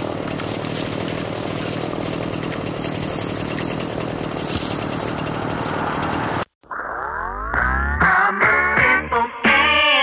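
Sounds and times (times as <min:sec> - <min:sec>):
engine noise with hiss: 0:00.0 - 0:06.5
music with rising slides: 0:06.7 - 0:10.0.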